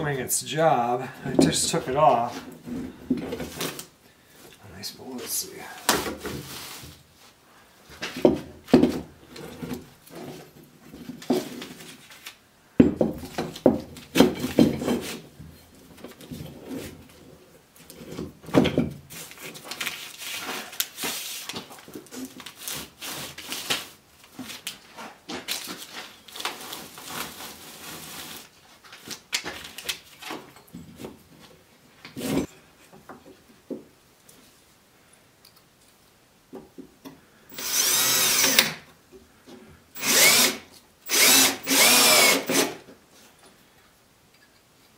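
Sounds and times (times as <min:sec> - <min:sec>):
wood knocks and clunks: 0:08.0 - 0:09.1, 0:12.8 - 0:15.0, 0:18.1 - 0:19.1.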